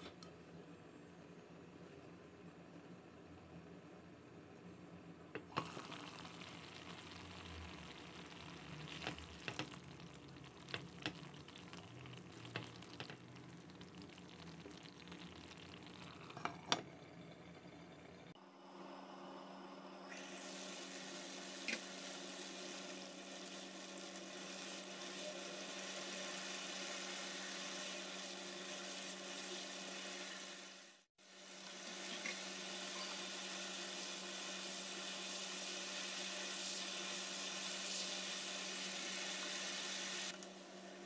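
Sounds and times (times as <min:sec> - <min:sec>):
curry bubbling and sizzling: 0:05.6 - 0:16.9, 0:20.3 - 0:40.4.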